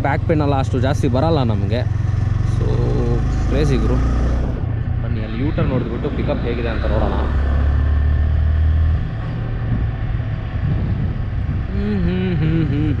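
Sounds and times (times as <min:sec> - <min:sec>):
motorcycle engine running: 0:00.0 - 0:05.1
road and wind noise: 0:00.0 - 0:13.0.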